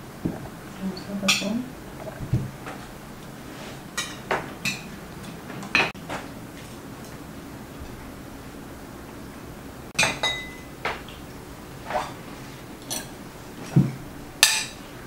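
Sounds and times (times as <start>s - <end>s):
cutlery clinking on plates: 10.0s - 10.7s, 12.8s - 14.8s.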